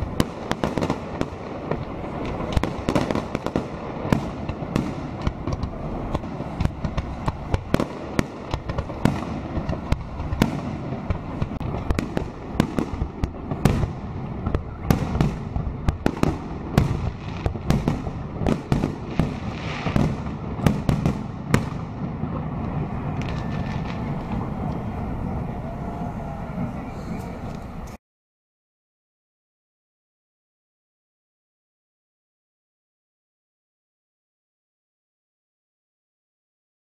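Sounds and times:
fireworks bangs: 0.0 - 27.9.

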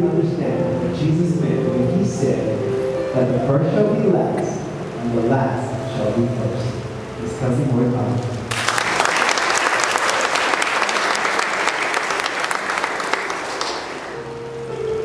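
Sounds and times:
held musical notes: 0.0 - 8.5, 9.8 - 15.0
audience applauding: 8.5 - 14.3.

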